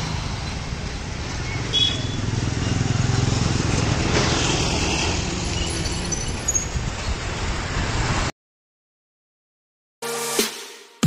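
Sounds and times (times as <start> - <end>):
vehicle engines rumbling: 0.0 - 8.3.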